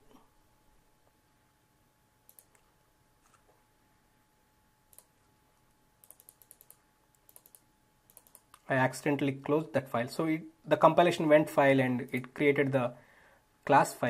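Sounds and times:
mouse and keyboard clicks: 2.3 - 2.6, 6.0 - 8.7.

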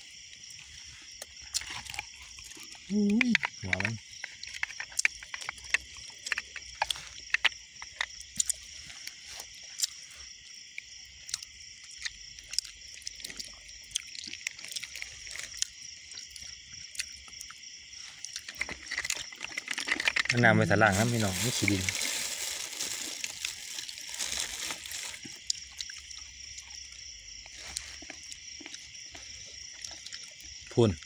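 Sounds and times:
night insects chorus: 0.0 - 31.0
close clicks and smacks: 3.2 - 8.6.

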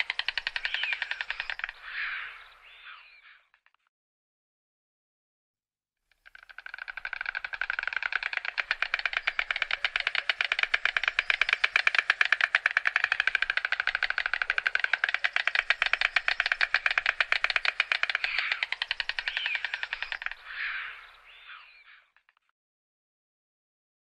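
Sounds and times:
stork clattering its bill: 0.0 - 1.9, 6.1 - 20.5.

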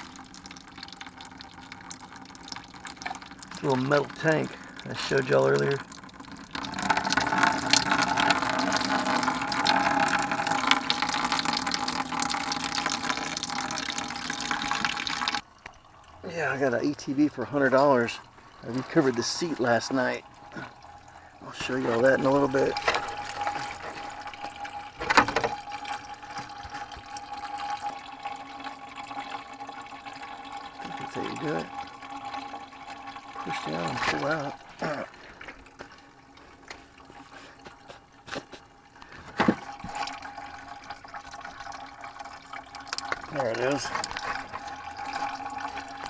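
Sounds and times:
coolant gushing and splashing: 0.0 - 46.0
liquid trickling into a pan: 0.0 - 46.0.

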